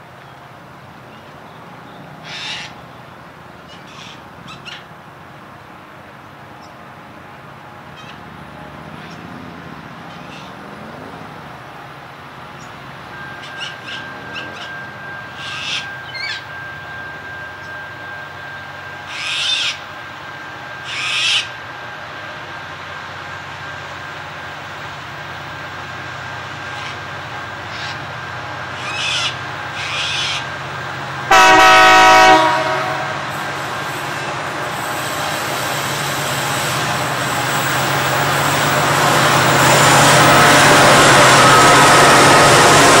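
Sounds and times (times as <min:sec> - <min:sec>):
train rumble: 0:00.0 - 0:43.0
birds calling: 0:10.0 - 0:10.6, 0:12.6 - 0:16.5, 0:26.7 - 0:30.6
steady high tone: 0:12.5 - 0:20.7.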